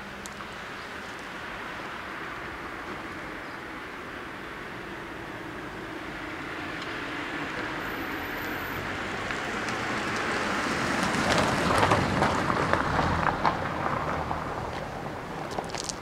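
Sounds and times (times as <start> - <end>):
tyres crackling on road: 0.0 - 16.0
car passing close by: 4.8 - 15.4.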